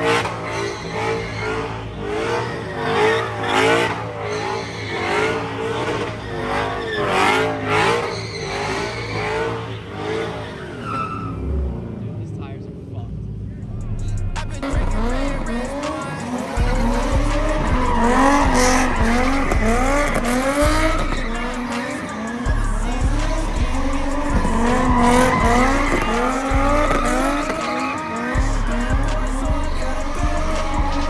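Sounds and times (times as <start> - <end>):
tyres squealing: 0.0 - 11.6, 14.2 - 31.0
car engines revving: 0.0 - 31.0
music with heavy bass beat: 13.8 - 31.0.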